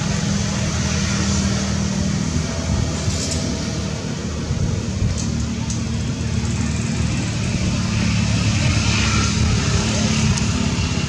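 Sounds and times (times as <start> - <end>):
engine droning: 0.0 - 11.0.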